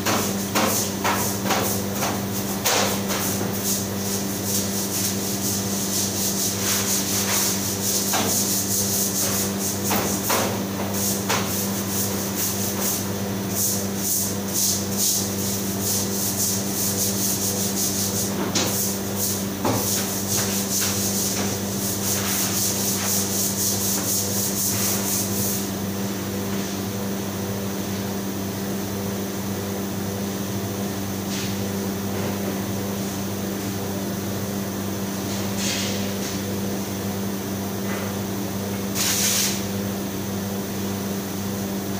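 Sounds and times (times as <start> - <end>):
refrigeration and ventilation hum: 0.0 - 41.9
brush scrubbing: 4.5 - 9.5.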